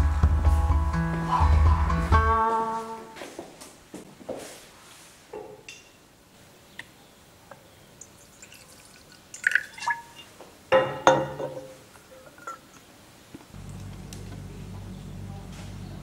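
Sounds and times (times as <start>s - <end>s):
whisky pouring and gurgling: 8.0s - 10.3s
glass clinks: 9.4s - 12.8s.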